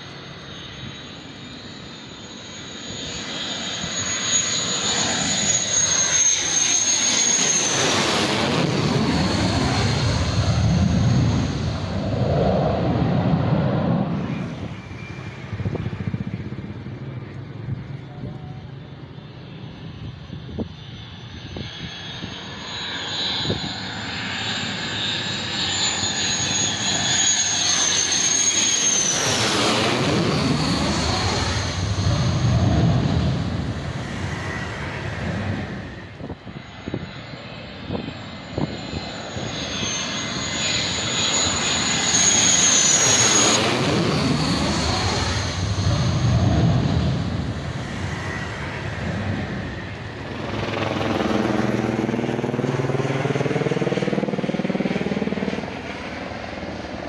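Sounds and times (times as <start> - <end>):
deep jet engine rumble: 0.0 - 57.0
jet turbine whine: 0.0 - 57.0.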